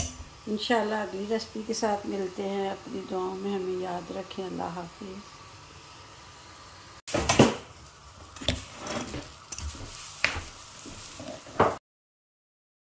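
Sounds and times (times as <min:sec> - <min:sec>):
spoon scraping a cooking pan: 0:08.3 - 0:11.7.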